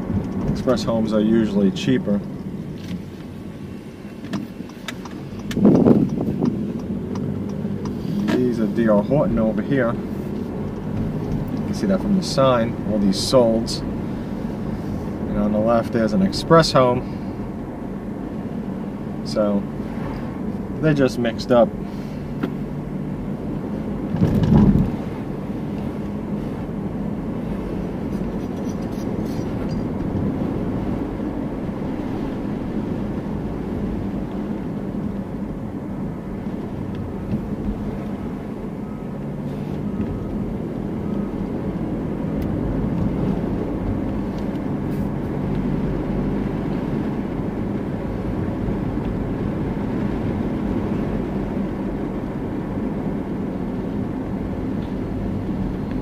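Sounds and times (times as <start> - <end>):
car engine: 0.0 - 56.0
road noise: 0.0 - 56.0
car bump: 4.1 - 8.5, 22.4 - 22.6, 24.1 - 25.2.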